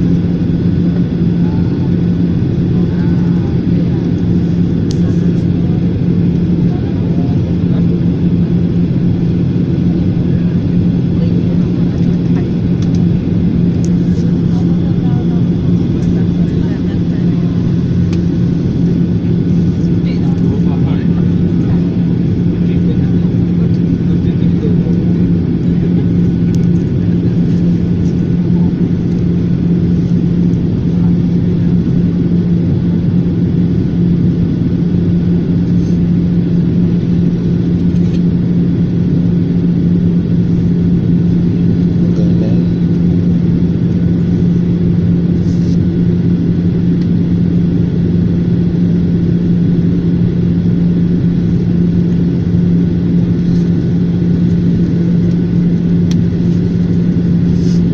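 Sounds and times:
jet engines rumbling: 0:00.0 - 0:57.9
low hum: 0:00.0 - 0:57.9.

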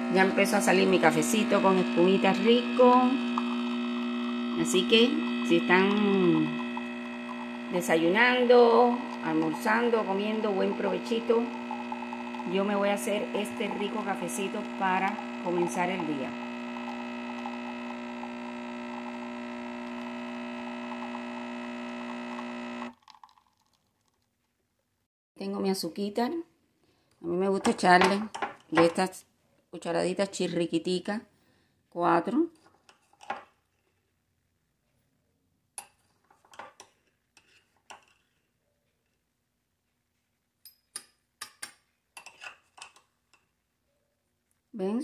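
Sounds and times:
coffee machine pump humming: 0:00.0 - 0:23.4.

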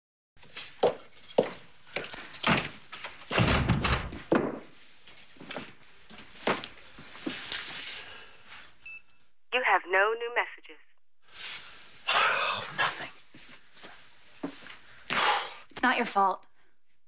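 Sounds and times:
footsteps: 0:00.4 - 0:08.8, 0:13.2 - 0:15.8
door opening: 0:02.4 - 0:04.6
knocks and thuds: 0:03.3 - 0:04.7.

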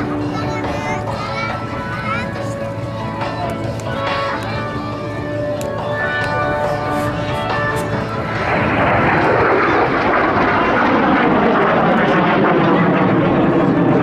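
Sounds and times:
show music: 0:00.0 - 0:10.0
jets flying over: 0:00.0 - 0:14.0.

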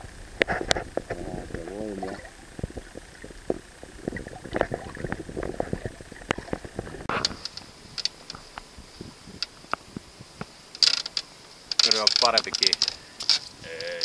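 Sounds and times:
underwater gurgling rumble: 0:00.0 - 0:10.4
underwater clicks and knocks: 0:00.4 - 0:08.7.

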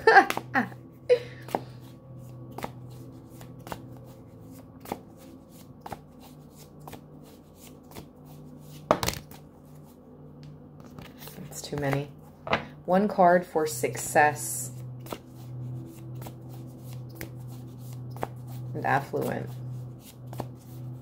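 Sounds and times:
cards being shuffled: 0:01.5 - 0:10.0, 0:10.8 - 0:12.1, 0:14.8 - 0:21.0.

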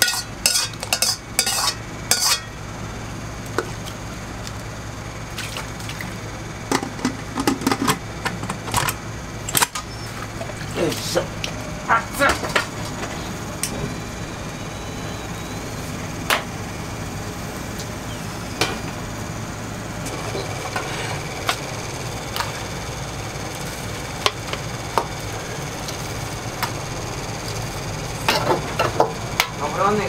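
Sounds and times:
kitchen utensils knocking: 0:00.0 - 0:02.4
kitchen equipment hum: 0:00.0 - 0:30.0.

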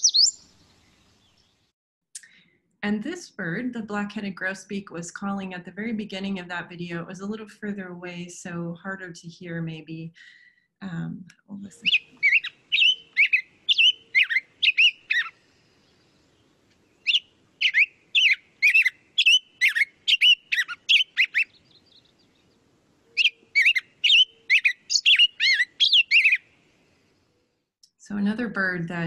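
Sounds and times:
bird whistling song: 0:00.0 - 0:01.5, 0:11.8 - 0:16.0, 0:17.0 - 0:22.2, 0:23.1 - 0:26.5.

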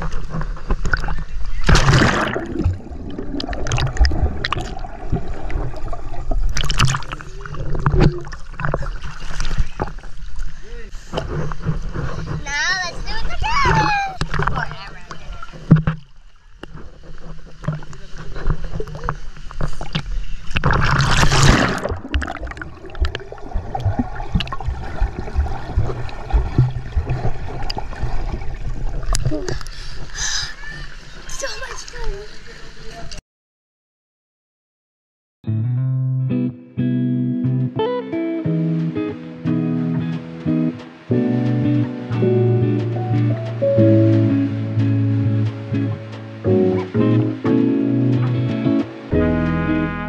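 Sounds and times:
water sloshing and gurgling: 0:00.0 - 0:33.2, 0:38.6 - 0:49.1
water splashing: 0:00.0 - 0:33.2, 0:38.4 - 0:50.0
low underwater knocks: 0:13.6 - 0:29.6, 0:38.5 - 0:49.6.

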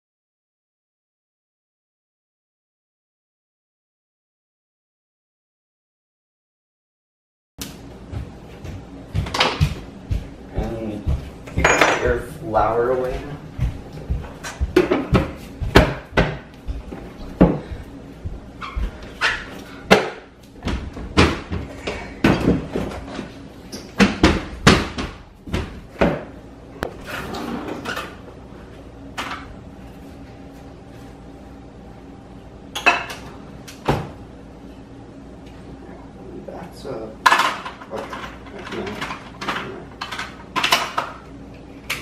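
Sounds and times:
bowls and utensils knocking: 0:11.6 - 0:12.2.

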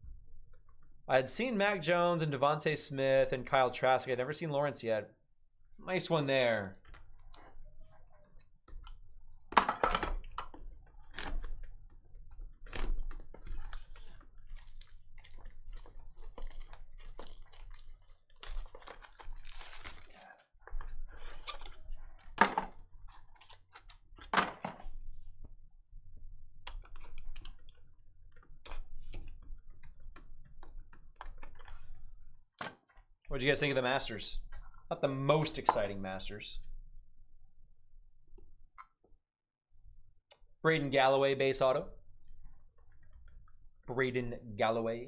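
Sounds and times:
cards rustling: 0:11.3 - 0:20.2.

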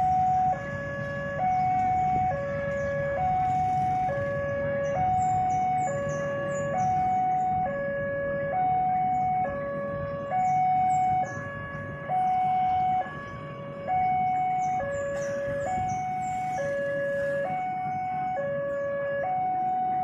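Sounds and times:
low rumble of traffic: 0:00.0 - 0:20.0
two-tone crossing alarm: 0:00.0 - 0:20.0.

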